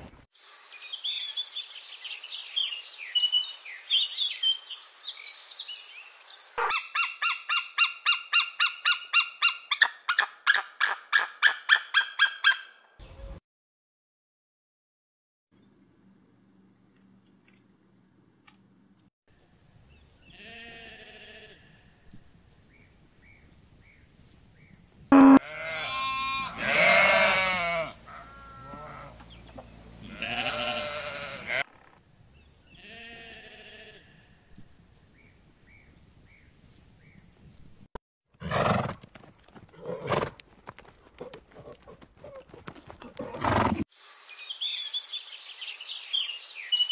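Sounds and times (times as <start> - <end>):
alpacas crying: 25.4 - 29.2, 30.0 - 31.6.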